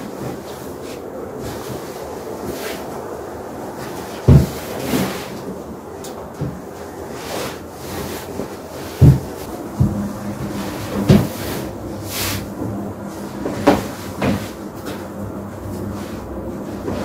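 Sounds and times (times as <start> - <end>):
sheet swish: 7.1 - 15.0.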